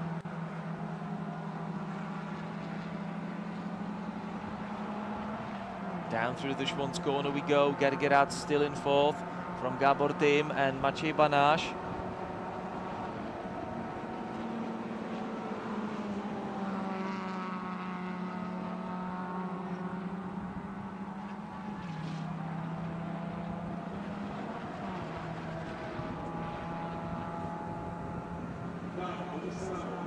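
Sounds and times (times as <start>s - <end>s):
race car engines running hard: 0.0s - 30.0s.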